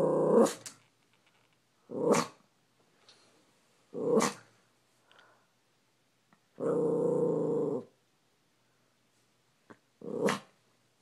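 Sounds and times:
dog growling: 0:00.0 - 0:00.6, 0:01.9 - 0:02.4, 0:03.9 - 0:04.5, 0:06.6 - 0:08.0, 0:10.0 - 0:10.5.

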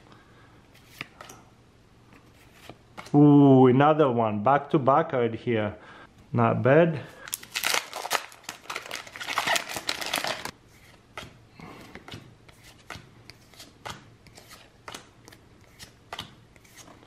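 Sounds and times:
foil wrapper crinkling and tearing: 0:07.3 - 0:10.5.

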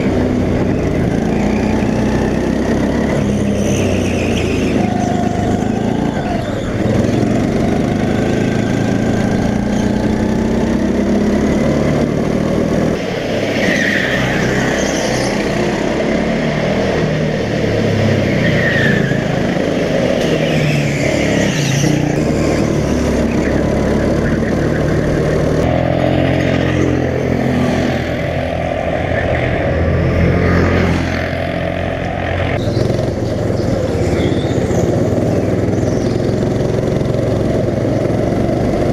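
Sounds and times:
go-kart engines running: 0:00.0 - 0:38.9
high squeals: 0:00.6 - 0:07.4, 0:18.1 - 0:25.6.

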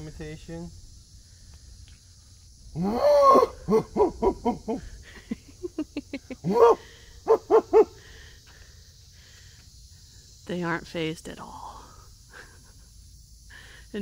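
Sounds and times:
man imitating monkey whoops: 0:02.8 - 0:04.9, 0:06.4 - 0:08.0.

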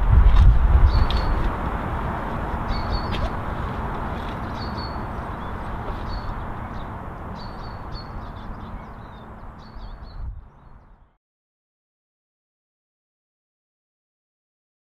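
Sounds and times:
small birds chirping: 0:00.8 - 0:01.5, 0:02.5 - 0:11.2.

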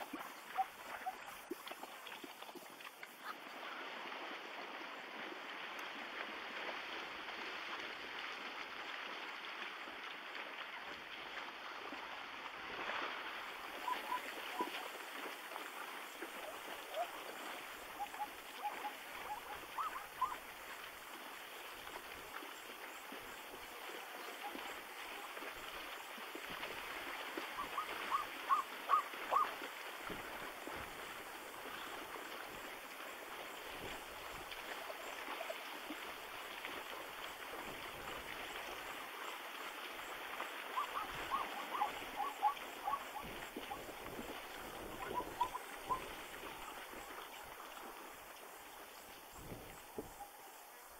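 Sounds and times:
steady outdoor hiss: 0:00.0 - 0:50.9
zebra barking calls: 0:27.6 - 0:29.5.

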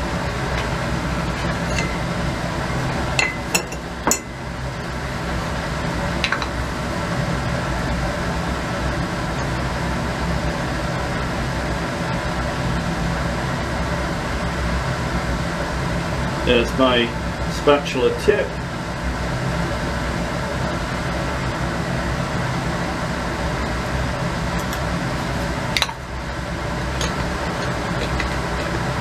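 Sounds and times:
ventilation hum: 0:00.0 - 0:29.0
glassware clinking: 0:01.5 - 0:02.0, 0:03.2 - 0:04.3.

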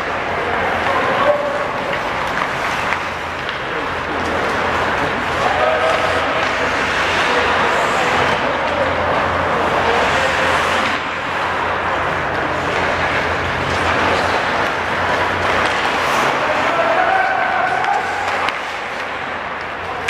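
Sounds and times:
hockey sticks hitting: 0:00.0 - 0:20.0
skates scraping ice: 0:00.0 - 0:20.0.

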